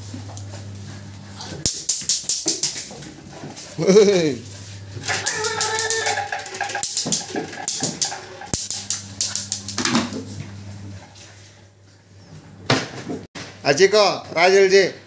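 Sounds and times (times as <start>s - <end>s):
puppy whimpering: 5.0s - 6.4s.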